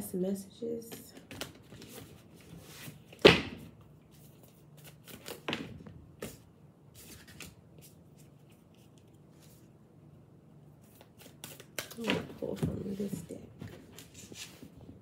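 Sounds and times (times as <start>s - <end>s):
cards rustling: 4.1s - 6.4s, 10.8s - 14.7s.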